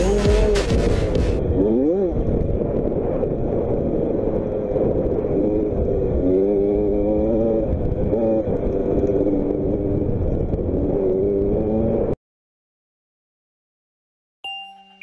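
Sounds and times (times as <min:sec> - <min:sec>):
heavy low rumble: 0:00.0 - 0:12.2.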